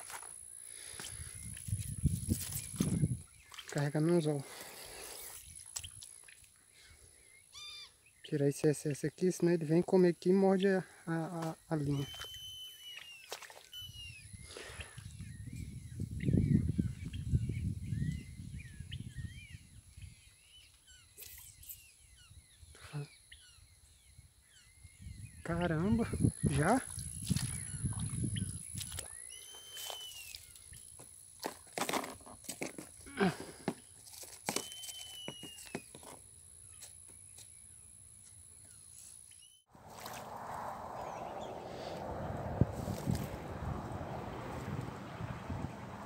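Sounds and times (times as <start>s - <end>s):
small birds chirping: 0.8s - 31.0s
wind on microphone: 1.1s - 3.4s, 13.8s - 20.3s, 24.8s - 29.1s, 39.8s - 46.0s.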